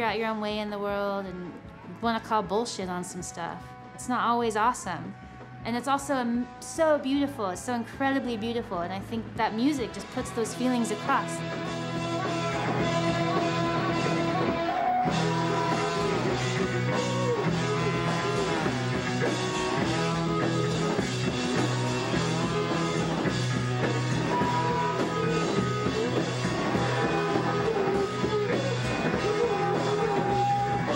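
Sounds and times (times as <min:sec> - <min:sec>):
live rock band playing: 0:09.4 - 0:30.9.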